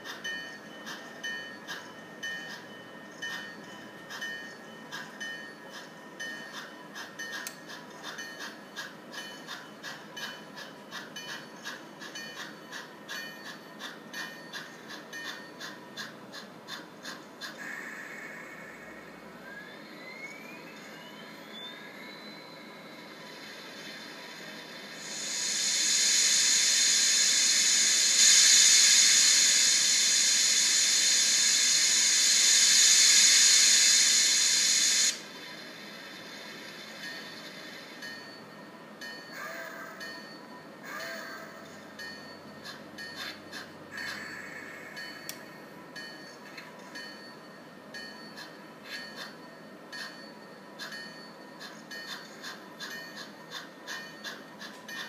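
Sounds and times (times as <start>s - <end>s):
model steam locomotive chuffing: 0.0s - 55.0s
steady hiss: 17.0s - 19.9s, 20.7s - 39.4s, 40.0s - 47.4s.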